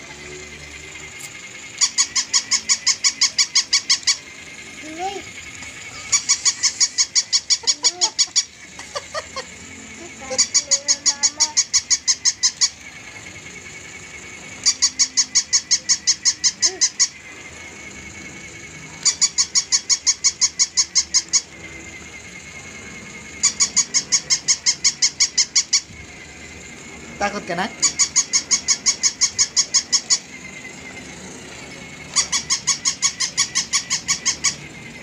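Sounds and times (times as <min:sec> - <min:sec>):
faint steady whir: 0:00.0 - 0:35.0
toy dog squeaky yaps: 0:01.6 - 0:13.0, 0:14.6 - 0:17.3, 0:19.0 - 0:21.6, 0:23.3 - 0:26.2, 0:27.8 - 0:30.4, 0:32.1 - 0:34.7.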